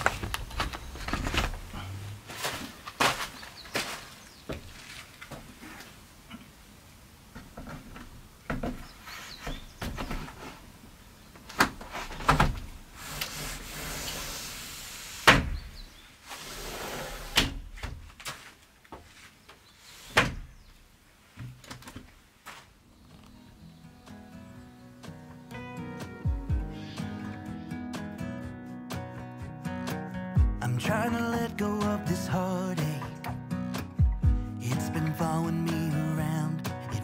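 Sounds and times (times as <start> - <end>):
wooden frame scraping: 0.0 - 6.0, 11.6 - 20.7.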